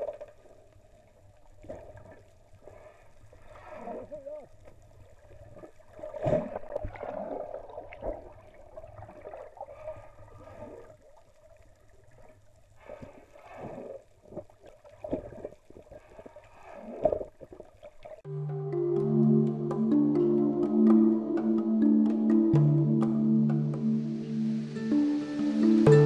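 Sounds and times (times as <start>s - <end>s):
underwater water gurgling: 0.0s - 18.2s.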